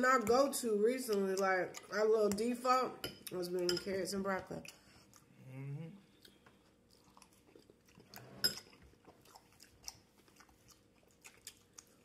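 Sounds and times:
person chewing food: 1.1s - 2.4s, 4.6s - 12.0s
person humming: 5.4s - 6.1s.

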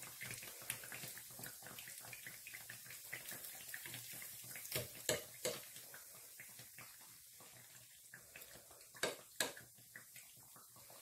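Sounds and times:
dough sizzling in hot oil: 0.0s - 11.0s
metal spoon clicking on pan: 9.0s - 9.6s.

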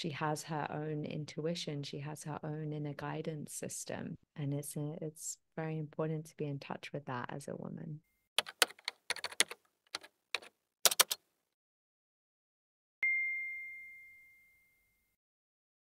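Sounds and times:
typewriter key clicks: 8.4s - 11.2s.

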